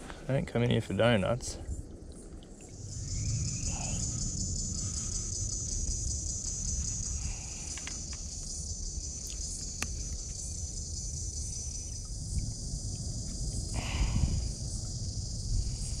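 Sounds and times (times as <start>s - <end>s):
insects chirring: 0.0s - 16.0s
low rumble: 1.6s - 16.0s.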